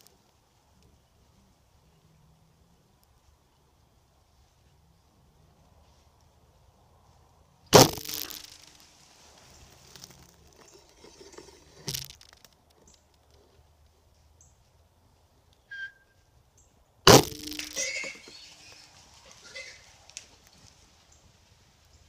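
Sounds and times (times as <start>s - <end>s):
quieter crack: 7.8s - 13.4s, 17.1s - 18.8s.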